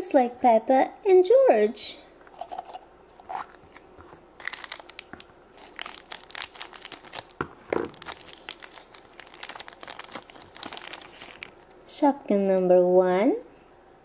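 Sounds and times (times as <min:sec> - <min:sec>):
plastic bag crinkling: 0:02.3 - 0:11.8.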